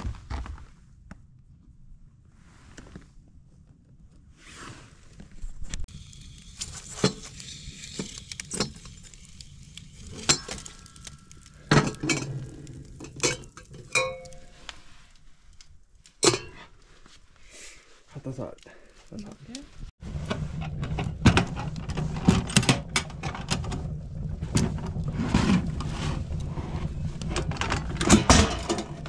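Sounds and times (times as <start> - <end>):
metal stove door and pot clanking: 10.1 - 14.6, 16.2 - 16.7, 27.3 - 29.0.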